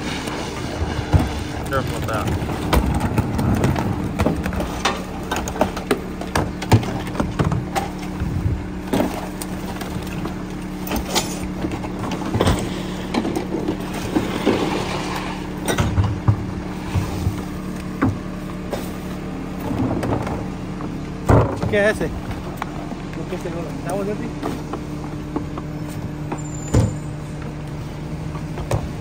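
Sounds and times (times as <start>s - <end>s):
carts banging against hopper: 0.0s - 19.0s, 19.6s - 23.3s
garbage truck idling: 0.0s - 29.0s.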